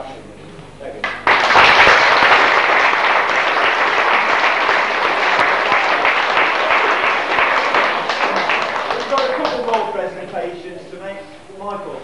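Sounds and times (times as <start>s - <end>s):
audience applauding: 1.0s - 10.1s.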